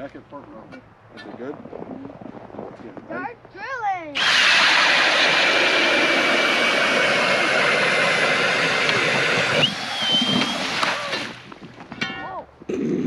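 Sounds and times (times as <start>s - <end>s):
drill auger grinding through ice: 4.2s - 11.5s.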